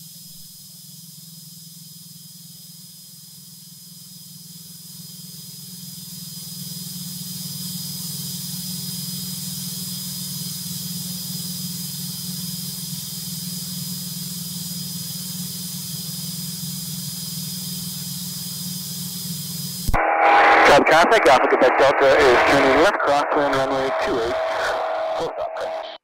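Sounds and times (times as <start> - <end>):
light aircraft engine and propeller: 0.6 - 19.9
thin high whine: 19.2 - 26.0.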